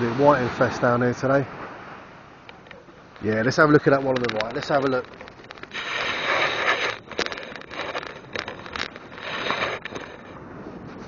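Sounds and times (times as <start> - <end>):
surf: 0.0 - 11.0
wind: 0.0 - 11.0
rustling and scraping on sand: 2.6 - 11.0
microphone handling noise: 3.2 - 11.0.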